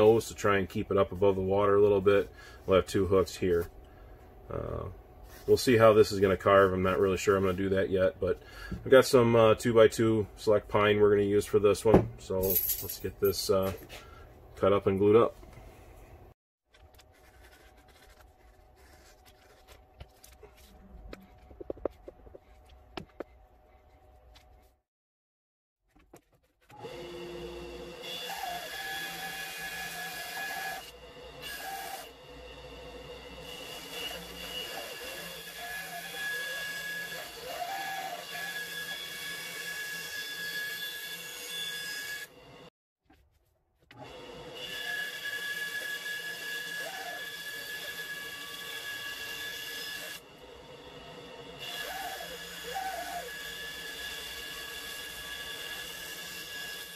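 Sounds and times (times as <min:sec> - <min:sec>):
band saw motor whining: 0:26.8 - 0:42.7, 0:44.0 - 0:56.9.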